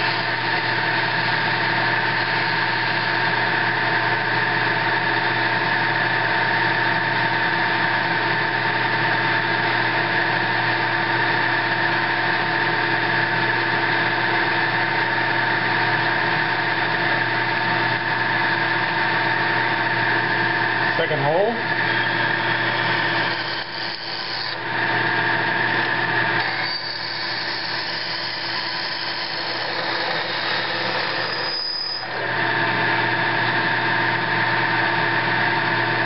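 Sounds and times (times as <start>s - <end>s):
drill cutting through steel: 0.0s - 7.4s, 13.2s - 34.2s
drill press motor humming: 0.0s - 36.0s.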